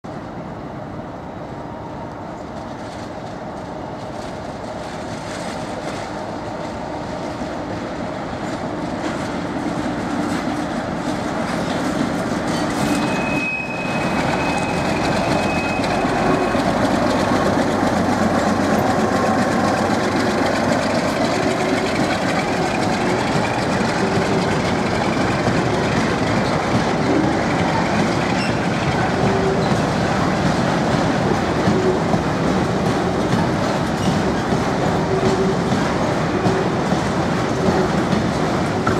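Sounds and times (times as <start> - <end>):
diesel locomotive passing: 0.0 - 38.9
wagon wheels clattering over rail joints: 8.9 - 38.9
high thin squeal: 12.7 - 16.8.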